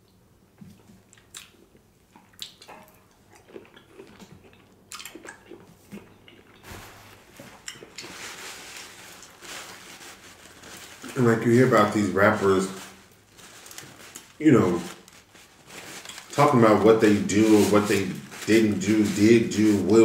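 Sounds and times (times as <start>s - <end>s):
man chewing: 0.7s - 11.1s
paper towel rustling: 6.6s - 20.0s.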